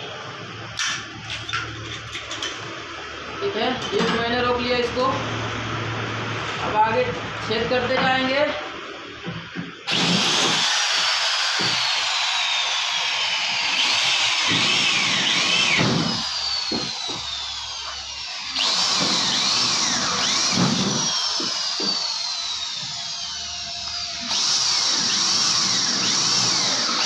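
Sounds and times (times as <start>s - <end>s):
electric drill whining: 9.9s - 27.0s.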